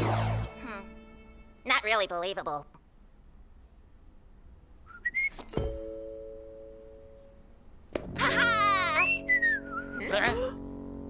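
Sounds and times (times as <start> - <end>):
bell-like ding: 5.5 - 7.9.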